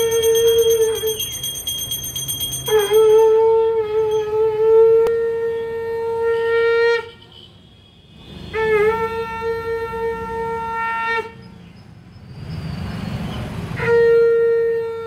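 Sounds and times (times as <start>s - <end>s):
conch shell blown: 0.0s - 1.3s, 2.7s - 7.3s, 8.4s - 11.5s, 13.8s - 15.0s.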